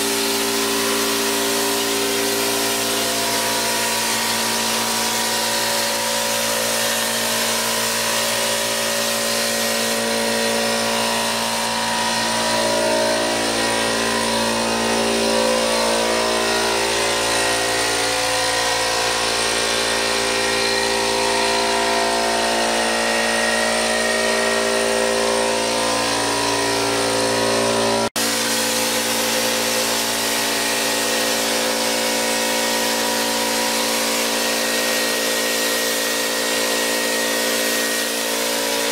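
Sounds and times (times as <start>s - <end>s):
air compressor humming: 0.0s - 38.9s
hiss of spray gun: 0.0s - 38.9s.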